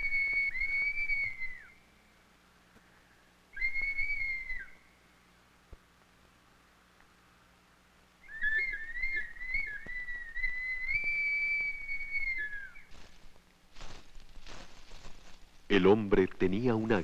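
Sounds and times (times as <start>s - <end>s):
clay bottle wavering whistle: 8.2s - 12.8s.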